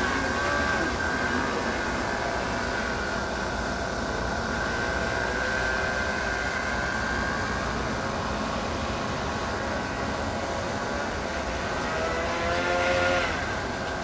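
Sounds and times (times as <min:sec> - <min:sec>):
model airboat motor whining: 0:00.0 - 0:14.0.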